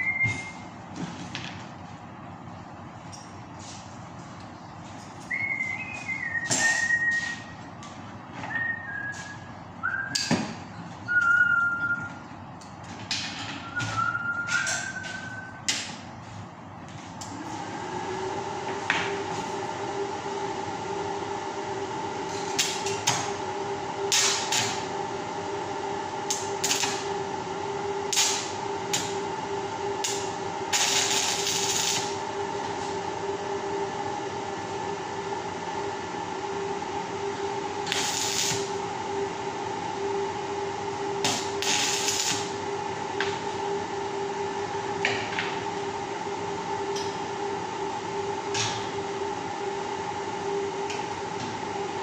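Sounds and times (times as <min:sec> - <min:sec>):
fan humming: 0:00.0 - 0:52.0
arc welding crackling hiss: 0:26.3 - 0:27.1, 0:28.0 - 0:29.2, 0:30.0 - 0:32.2, 0:37.8 - 0:38.8, 0:41.2 - 0:42.6.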